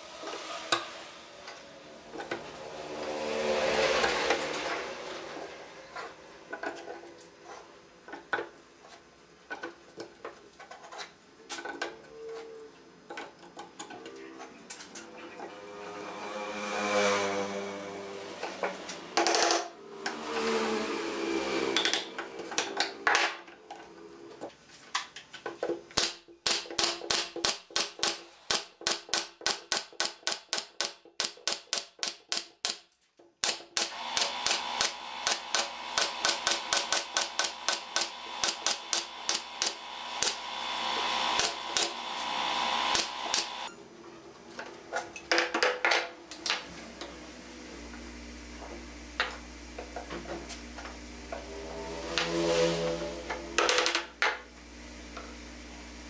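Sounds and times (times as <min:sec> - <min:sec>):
pneumatic nailer firing: 0:25.9 - 0:32.8, 0:33.4 - 0:43.7
air hissing: 0:33.9 - 0:43.7.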